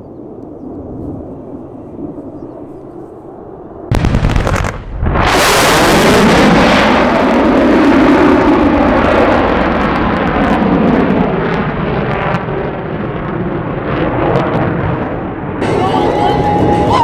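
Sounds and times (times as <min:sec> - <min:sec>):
loud jet engine roar: 0:00.0 - 0:17.0
jet engine crackling: 0:00.1 - 0:17.0.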